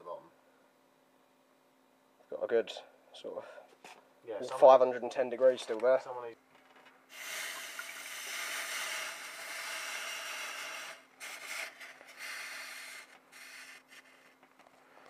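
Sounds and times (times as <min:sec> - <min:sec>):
hot metal sizzling under running water: 0:07.1 - 0:11.6.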